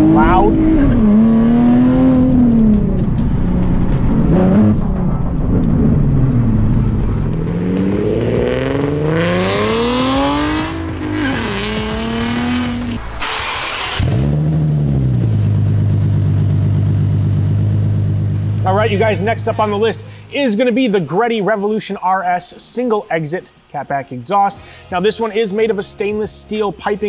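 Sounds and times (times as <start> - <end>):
car engine revving and idling: 0.0 - 20.3.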